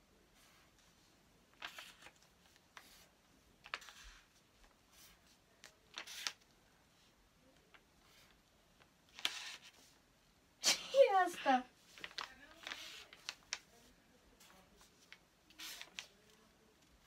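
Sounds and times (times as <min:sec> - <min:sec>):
markers scratching on paper: 0:01.5 - 0:06.4, 0:09.1 - 0:10.0, 0:11.9 - 0:16.4.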